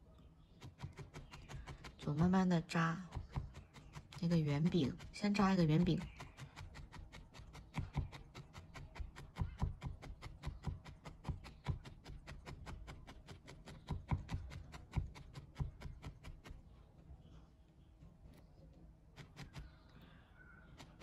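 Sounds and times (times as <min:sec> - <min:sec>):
felting needle clicks: 0:00.6 - 0:16.6.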